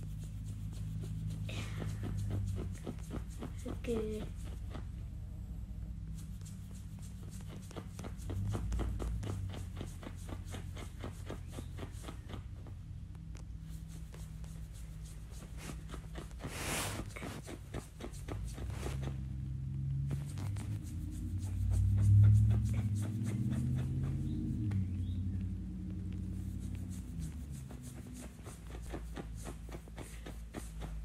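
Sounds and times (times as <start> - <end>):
scratching dog fur: 0.0 - 5.2, 6.0 - 25.2, 26.1 - 31.0
loud rustle: 18.5 - 19.2.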